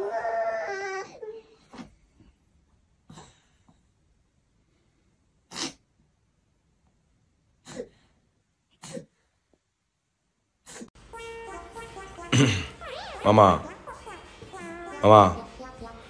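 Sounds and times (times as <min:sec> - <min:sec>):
sharp sneezes: 0:05.5 - 0:05.8.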